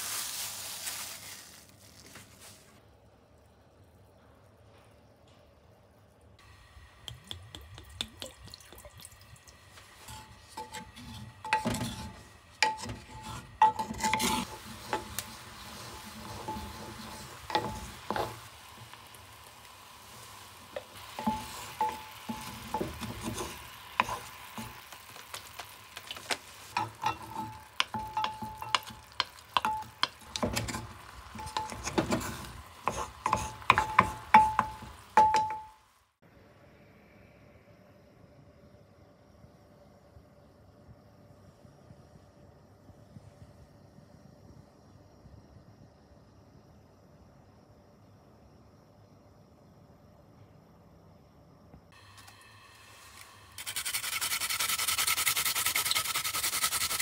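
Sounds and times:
pan juices sizzling: 6.8 - 35.9, 52.0 - 57.0
spatula scraping cast iron: 10.0 - 18.5, 21.0 - 26.0, 26.6 - 35.5.

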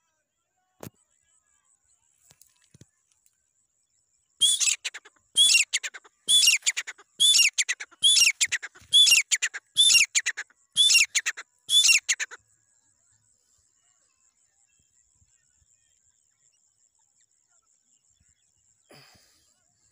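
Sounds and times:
francolin calling: 4.4 - 12.4.

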